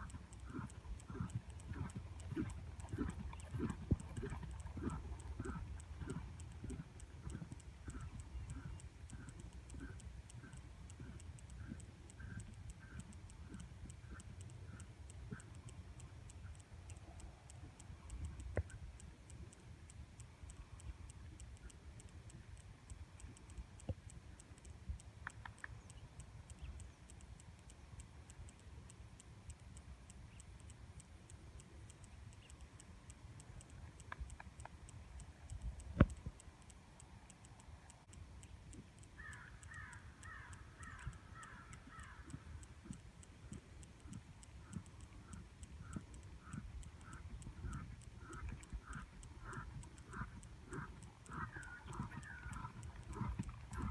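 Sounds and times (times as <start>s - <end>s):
fine high ticking: 0.0s - 53.9s
scattered clicks: 0.0s - 53.9s
bird calling: 39.2s - 42.3s.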